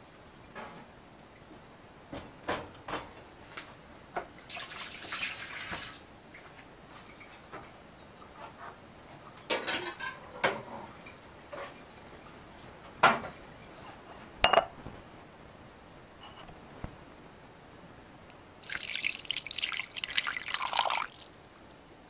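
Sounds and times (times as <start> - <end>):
dishes and cutlery clattering: 9.5 - 10.9.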